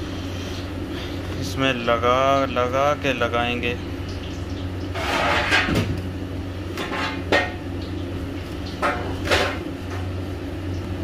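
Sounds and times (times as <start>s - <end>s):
steady low hum: 0.0s - 11.0s
breadcrumbs scraping on metal tray: 5.0s - 5.8s.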